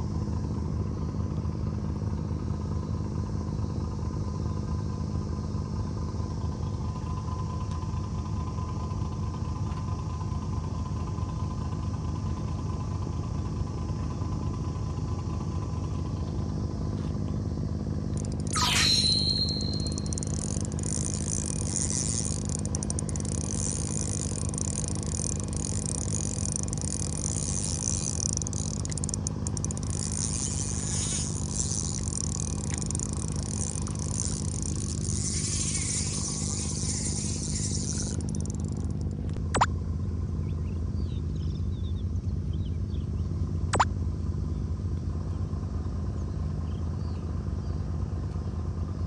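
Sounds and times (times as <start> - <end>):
low machine hum: 0.0 - 49.0
high buzzing hiss: 18.2 - 38.6
sharp click: 18.2 - 39.7.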